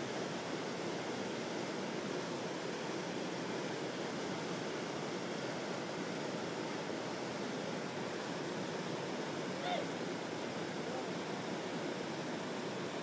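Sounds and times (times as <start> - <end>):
river water rushing over weir: 0.0 - 13.0.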